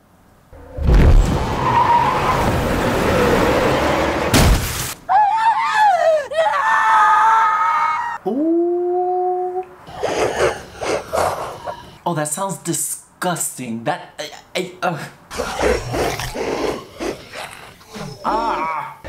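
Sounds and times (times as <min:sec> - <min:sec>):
vehicle skidding: 0:00.6 - 0:04.4
crash smash: 0:00.8 - 0:01.6, 0:04.2 - 0:05.0
person screaming and wailing: 0:05.1 - 0:09.7, 0:17.9 - 0:19.0.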